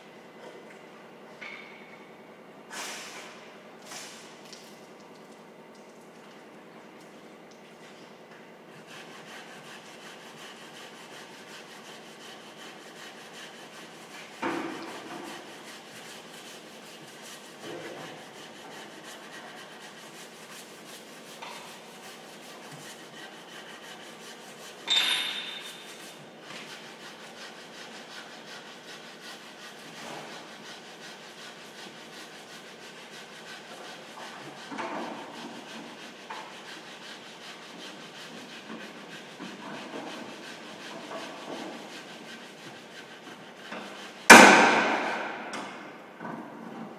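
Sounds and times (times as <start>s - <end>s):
workshop background noise: 2.7s - 32.5s, 33.2s - 46.9s
sharp ringing metal clang: 24.9s - 25.7s.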